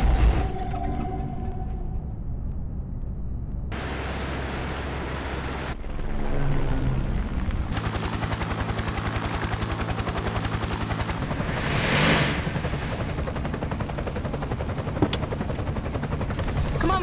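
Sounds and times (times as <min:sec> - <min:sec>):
helicopter rotor beating: 0:03.8 - 0:17.0.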